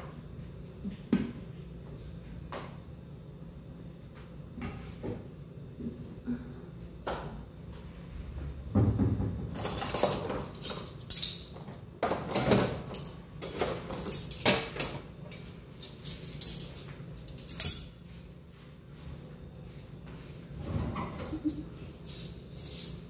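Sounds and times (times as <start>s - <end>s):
metal cutlery clinking: 9.6s - 11.5s, 12.9s - 18.0s, 22.0s - 23.0s.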